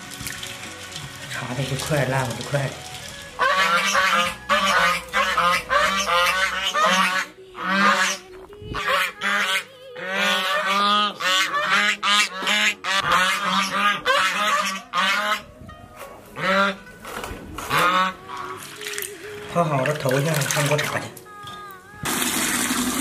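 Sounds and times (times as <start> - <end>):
geese honking: 3.4 - 15.5, 16.4 - 18.8.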